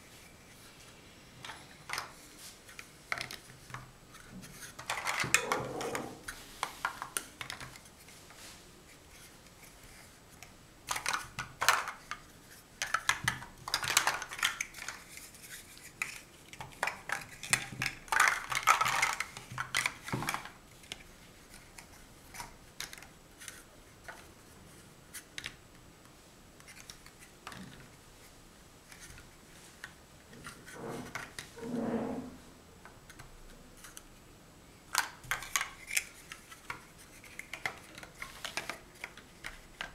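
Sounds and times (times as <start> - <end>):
plastic blocks clattering and clicking: 1.4 - 7.8, 10.8 - 24.3, 34.9 - 39.9.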